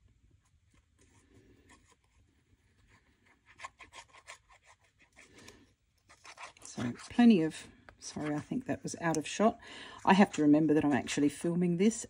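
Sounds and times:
paper rubbing: 0.7 - 5.4, 6.0 - 7.2.

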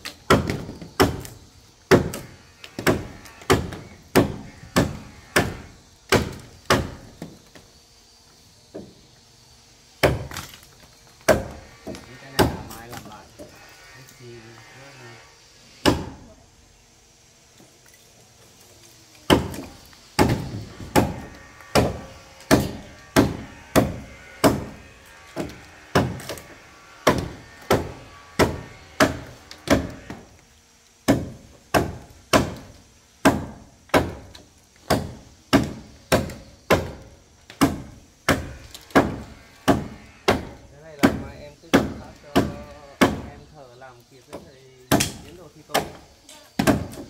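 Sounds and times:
tool striking wood: 0.0 - 7.4, 11.2 - 13.6, 15.8 - 16.2, 19.3 - 30.3, 31.0 - 43.4, 44.3 - 46.0, 46.6 - 47.0.

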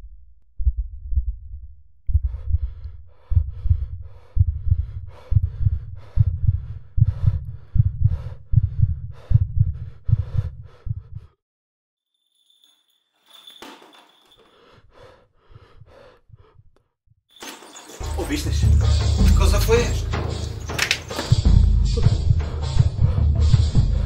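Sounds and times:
deep heartbeat-like thudding pulse: 0.0 - 11.4, 21.3 - 24.0.

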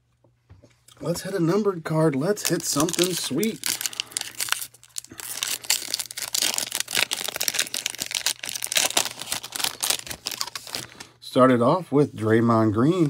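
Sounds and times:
foil wrapper crinkling and tearing: 2.2 - 11.2.

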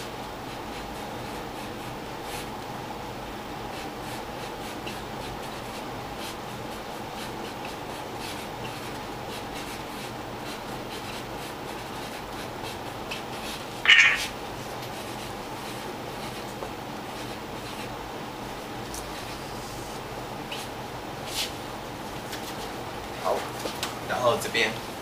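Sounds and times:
faint steady hum: 0.0 - 25.0
marker scratching on cardboard: 7.2 - 14.4
marker tip squeak: 13.9 - 14.3.

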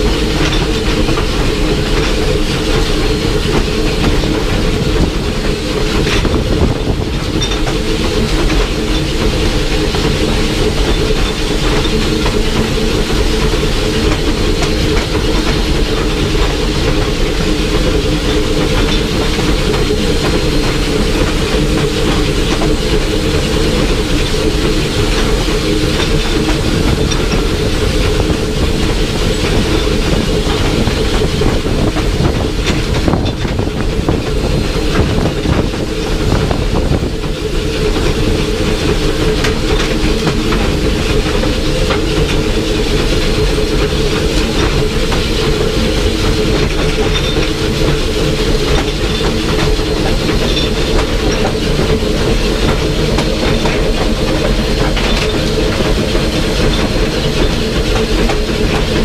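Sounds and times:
wheels clattering on track: 0.0 - 59.0.

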